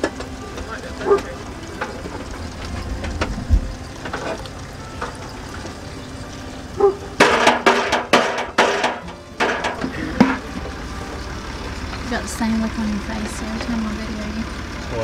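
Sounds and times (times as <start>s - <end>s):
boiling juice hissing: 0.0s - 15.0s
metal pot clanking on metal pan: 6.8s - 10.7s.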